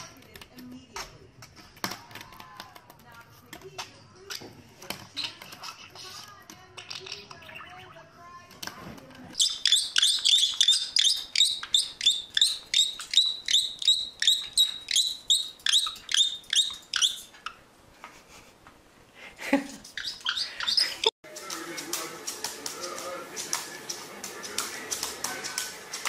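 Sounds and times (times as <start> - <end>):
parrot shrill calls: 9.4 - 17.6, 19.9 - 21.1.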